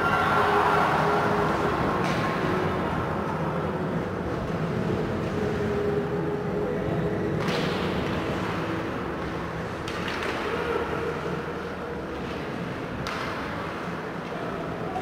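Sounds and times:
sharp hockey play noise: 0:00.0 - 0:02.8, 0:07.3 - 0:15.0
skates and sticks on ice: 0:07.4 - 0:15.0.

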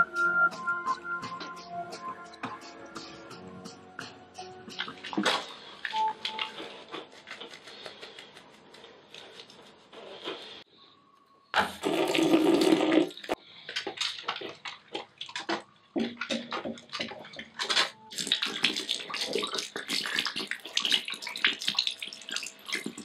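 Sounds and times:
tap water running into basin: 0:11.6 - 0:13.4, 0:18.1 - 0:23.0.

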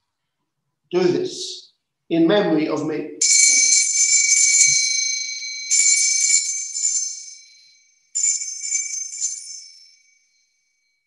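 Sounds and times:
altar bells ringing: 0:03.2 - 0:11.0.

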